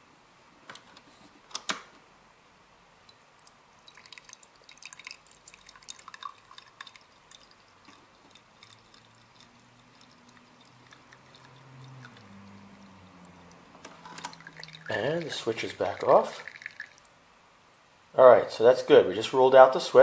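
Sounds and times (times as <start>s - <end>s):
fuel dripping into glass: 3.0s - 17.2s.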